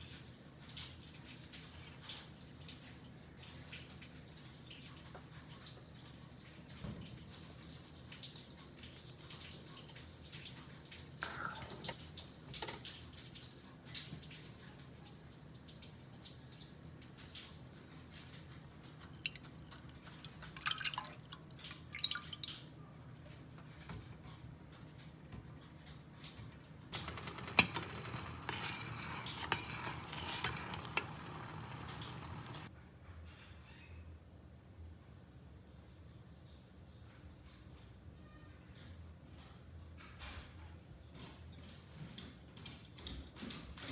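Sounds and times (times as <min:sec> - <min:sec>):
coconut milk simmering and bubbling: 0:00.0 - 0:32.8
ladle stirring beans in syrup: 0:27.0 - 0:32.7
spatula scraping: 0:27.0 - 0:32.7.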